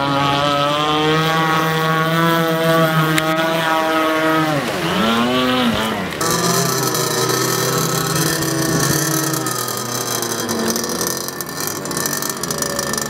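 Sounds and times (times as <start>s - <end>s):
rc boat motor whine: 0.0s - 13.0s.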